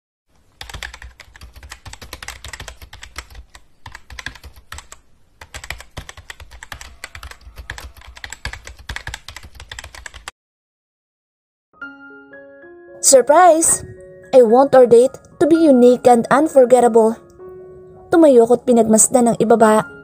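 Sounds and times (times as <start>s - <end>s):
keyboard typing clicks: 0.6s - 10.3s.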